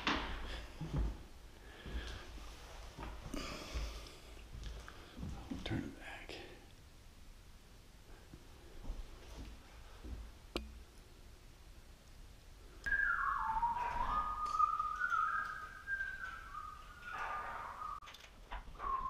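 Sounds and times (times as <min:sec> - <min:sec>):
man whistling a tune: 0:12.8 - 0:18.0, 0:18.8 - 0:19.0.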